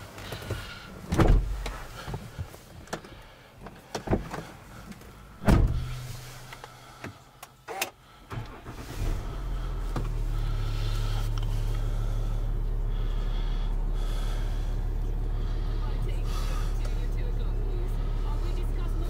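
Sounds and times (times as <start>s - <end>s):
car engine starting and idling: 0.0s - 19.0s
knocks and clicks in car cabin: 0.4s - 4.5s.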